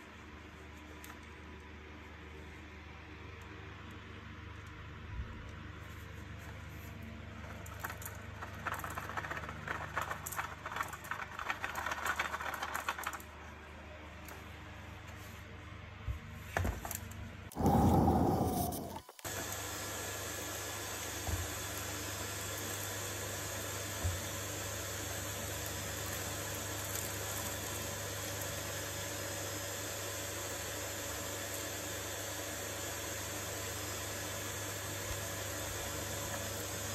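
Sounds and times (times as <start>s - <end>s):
faint hums: 17.5s - 19.2s
steady hiss: 17.5s - 19.2s.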